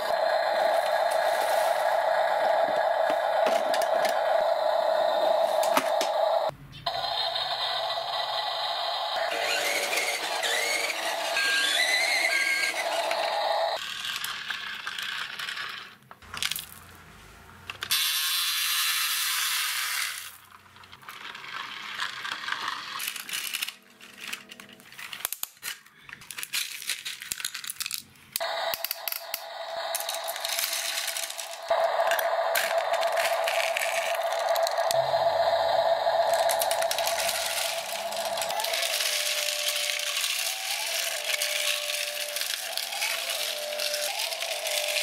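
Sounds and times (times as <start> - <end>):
pebbles pouring onto concrete: 36.3 - 45.0.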